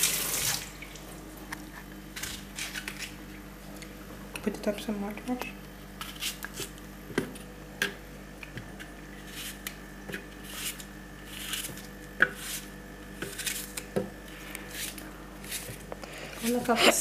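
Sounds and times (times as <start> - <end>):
knife cutting an apple: 6.0 - 8.0, 8.7 - 17.0.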